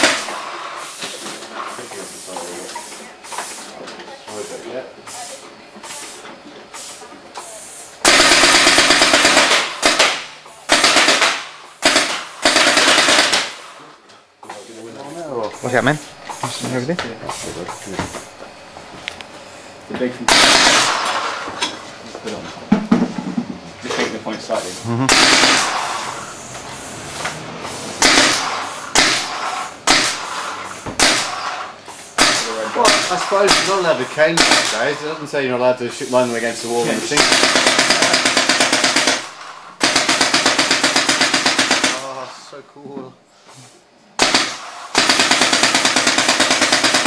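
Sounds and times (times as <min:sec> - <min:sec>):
paintball guns firing bursts: 0:00.0 - 0:00.4, 0:08.0 - 0:13.7, 0:20.3 - 0:21.4, 0:25.1 - 0:26.3, 0:28.0 - 0:31.6, 0:32.2 - 0:35.0, 0:37.1 - 0:42.1, 0:44.2 - 0:47.0.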